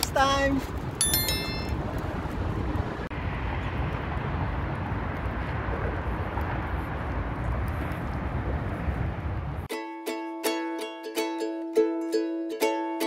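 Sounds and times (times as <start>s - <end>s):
road traffic: 0.0s - 9.7s
wind on microphone: 1.6s - 9.7s.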